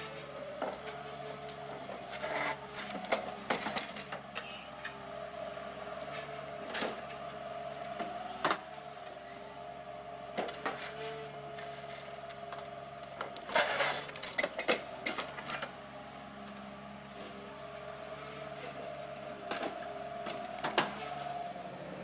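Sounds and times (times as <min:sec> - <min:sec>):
machine engine and hydraulics hum: 0:00.0 - 0:22.0
cracks and knocks of wood and metal: 0:00.6 - 0:04.9, 0:11.6 - 0:15.7.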